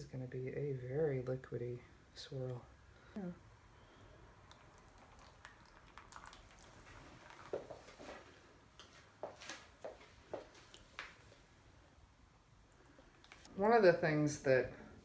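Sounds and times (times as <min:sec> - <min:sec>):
soap batter pouring and dripping: 0:04.0 - 0:11.5
soft wet plops: 0:04.3 - 0:11.4.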